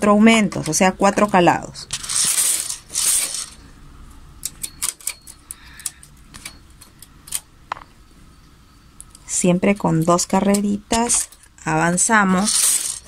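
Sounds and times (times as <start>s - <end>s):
knitting machine carriage pass: 1.9s - 3.6s, 12.2s - 13.0s.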